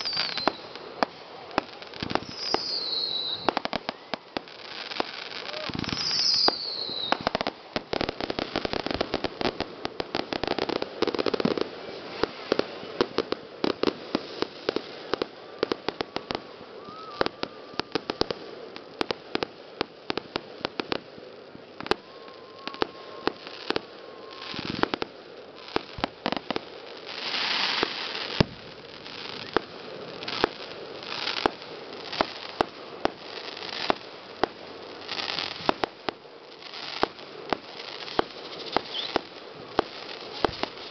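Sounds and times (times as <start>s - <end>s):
firework shells bursting with bangs: 0.0s - 19.5s, 37.0s - 40.9s
firework hissing rushes: 0.0s - 40.9s
rapid firework crackling: 0.0s - 40.9s.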